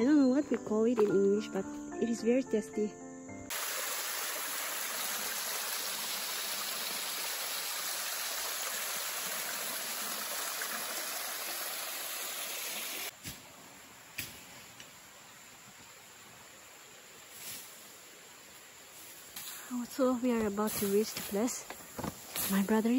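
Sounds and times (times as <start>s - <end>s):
stream splashing over stone: 3.5s - 13.1s.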